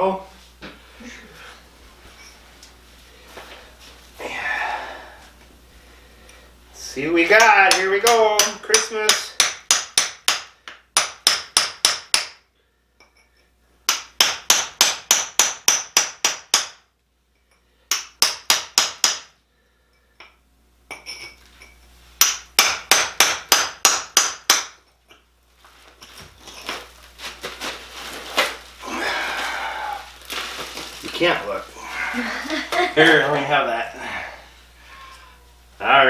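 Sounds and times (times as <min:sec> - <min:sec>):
hammer striking steel chisel: 0:07.4 - 0:12.4, 0:13.9 - 0:16.8, 0:17.9 - 0:19.3, 0:22.2 - 0:24.8.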